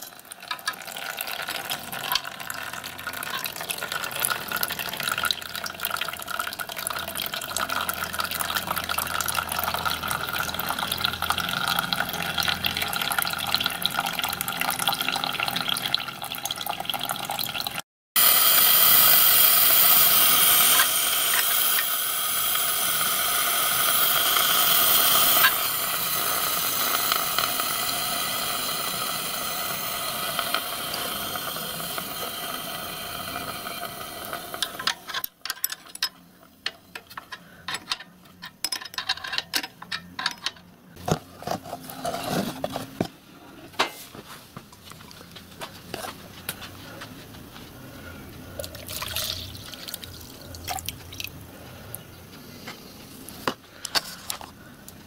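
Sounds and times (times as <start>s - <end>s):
steam valve rushing hiss: 18.2s - 35.1s.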